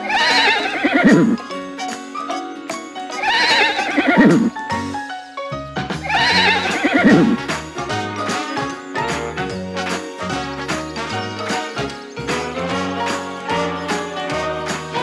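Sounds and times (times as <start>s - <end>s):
horse whinnying: 0.0s - 1.4s, 3.2s - 4.6s, 6.1s - 7.4s.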